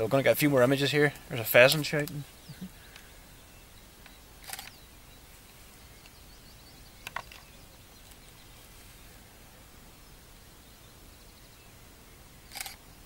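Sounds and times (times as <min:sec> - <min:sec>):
camera shutter clicking: 0:04.4 - 0:04.8, 0:12.5 - 0:12.8.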